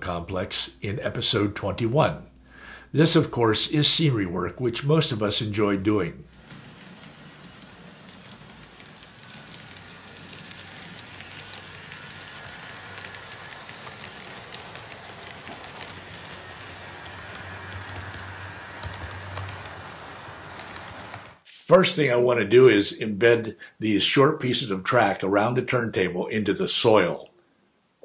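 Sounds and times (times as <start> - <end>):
model train wheels hissing on rail: 2.0 - 22.0.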